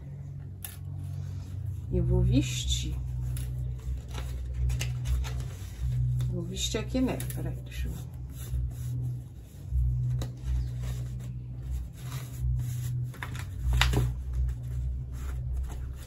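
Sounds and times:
steady low rumble: 0.0 - 16.0
fabric rubbing on plastic bottle: 7.5 - 16.0.

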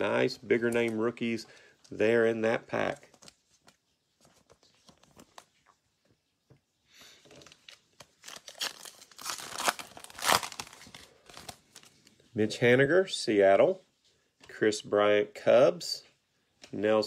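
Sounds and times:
faint taps and rustles of cards: 2.9 - 8.1
foil wrapper tearing and crinkling: 7.3 - 12.0.

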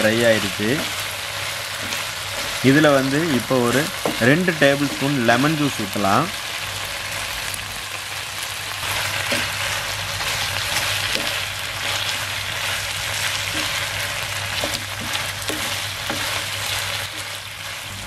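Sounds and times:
chicken sizzling in a frying pan: 0.0 - 18.0
wooden spatula scraping a pan: 0.7 - 5.4, 10.2 - 17.9.

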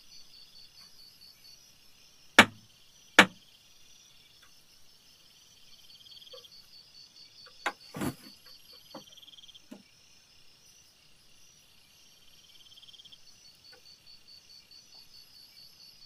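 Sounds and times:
crickets chirring: 0.0 - 16.0
dull thud: 2.4 - 2.6, 7.8 - 8.3
sharp loud knocks: 2.4 - 2.6, 3.2 - 3.4.

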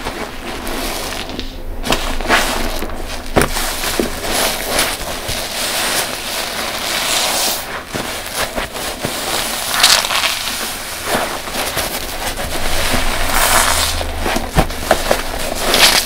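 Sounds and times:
foam bubbles crackling: 0.0 - 16.0
wet sponge squelching: 0.0 - 16.0.

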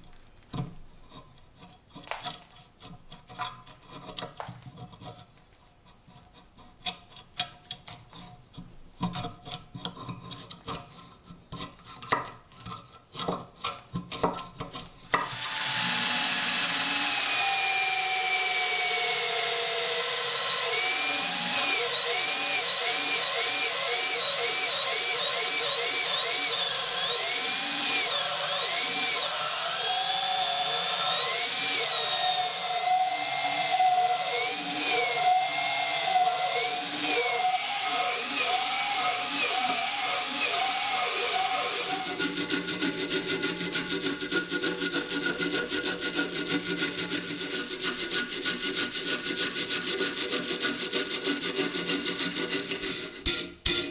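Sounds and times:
power drill with wire brush: 15.2 - 53.9.

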